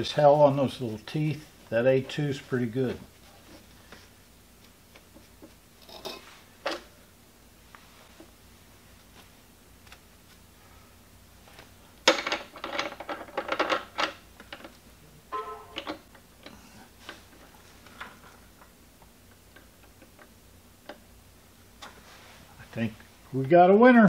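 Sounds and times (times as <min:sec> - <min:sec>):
metal parts clicking and clinking: 0:12.1 - 0:14.7, 0:15.4 - 0:16.1.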